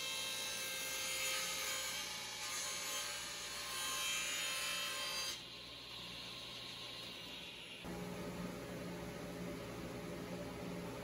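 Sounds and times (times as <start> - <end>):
table saw cutting cardboard tube: 0.0 - 7.9.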